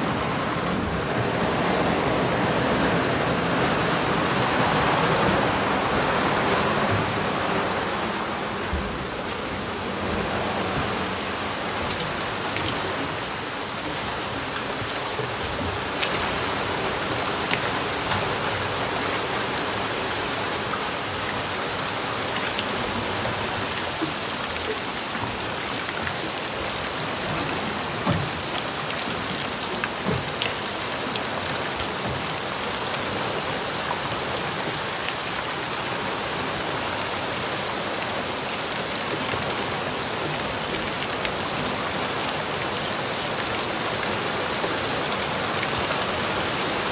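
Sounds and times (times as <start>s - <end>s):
rain hissing on water: 0.0s - 46.9s
raindrop taps: 22.6s - 32.4s.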